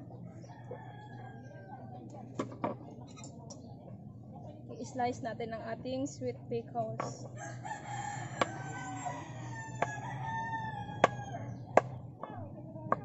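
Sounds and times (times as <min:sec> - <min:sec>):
rooster crowing: 0:07.4 - 0:11.7.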